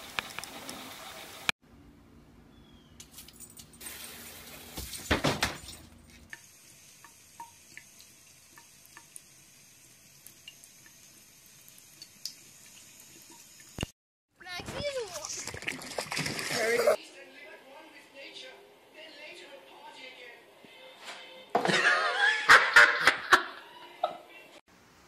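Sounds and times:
water drips: 0:06.2 - 0:13.9
water trickling from tap: 0:06.3 - 0:13.9.

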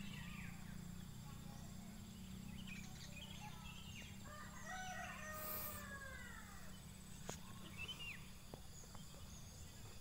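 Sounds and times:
low background noise: 0:00.0 - 0:10.0
small bird chirps: 0:00.0 - 0:10.0
rooster crowing: 0:04.2 - 0:06.5.

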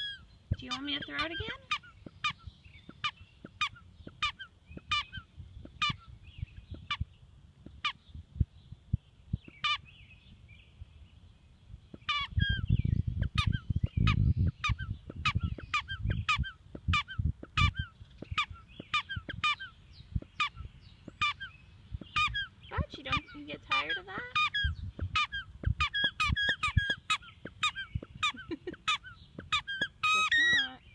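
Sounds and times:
squeaky rubber ball squeaking: 0:22.1 - 0:28.4, 0:29.4 - 0:30.7.

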